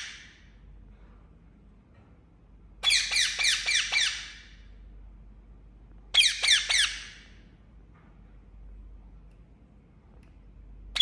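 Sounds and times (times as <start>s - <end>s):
parakeet shrill calls: 2.8s - 4.6s, 6.1s - 7.3s.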